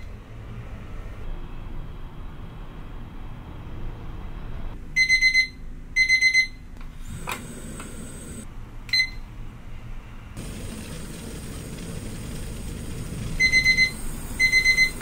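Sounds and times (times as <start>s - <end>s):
kitchen timer beeping: 5.0s - 6.6s, 8.9s - 9.2s, 12.8s - 15.0s.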